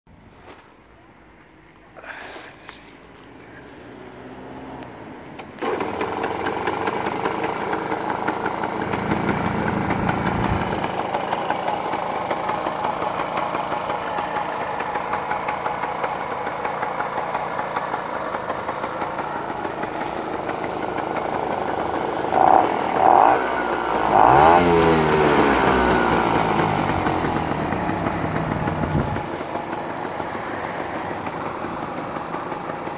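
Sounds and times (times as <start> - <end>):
engine revving: 3.8 - 13.2, 19.4 - 29.5
moped engine running: 5.4 - 32.9.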